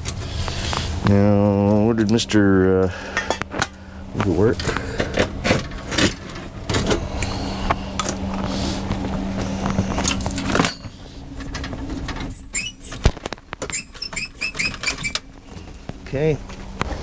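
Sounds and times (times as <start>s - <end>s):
steady low hum: 0.0s - 17.0s
short high squeaks: 12.2s - 15.3s.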